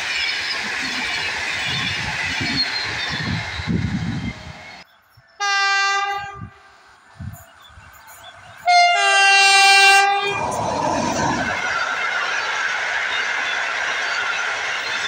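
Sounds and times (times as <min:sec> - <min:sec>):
rumble of passing train: 0:00.0 - 0:15.0
locomotive horn blasts: 0:05.4 - 0:06.7, 0:08.7 - 0:10.4.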